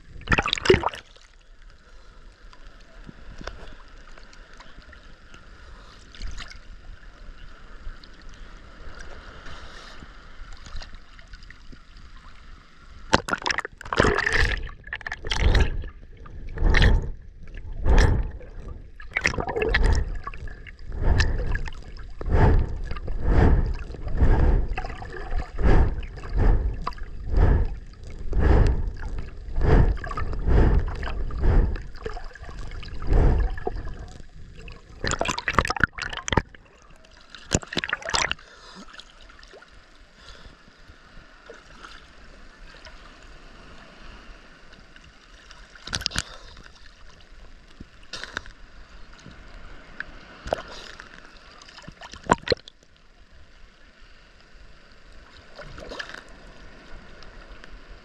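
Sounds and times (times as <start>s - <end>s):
seawater splashing and sloshing: 13.1s - 39.6s, 55.3s - 56.5s.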